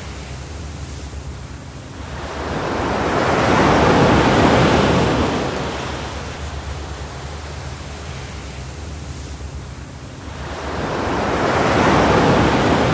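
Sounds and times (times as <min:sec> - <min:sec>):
wave washing up beach: 0:01.9 - 0:09.4, 0:10.2 - 0:12.9.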